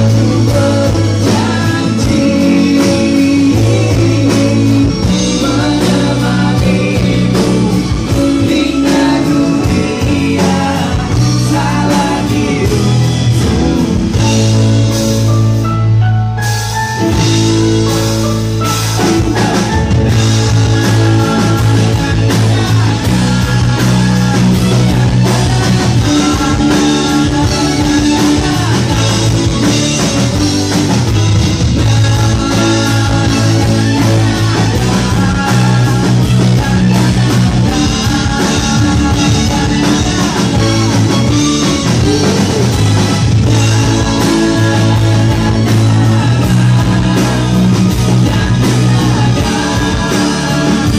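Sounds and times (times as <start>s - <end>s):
man singing: 0.0s - 15.4s, 17.0s - 50.9s
bass guitar: 0.0s - 50.9s
drums: 0.0s - 50.9s
electric guitar: 0.0s - 50.9s
acoustic guitar strumming: 17.0s - 50.9s.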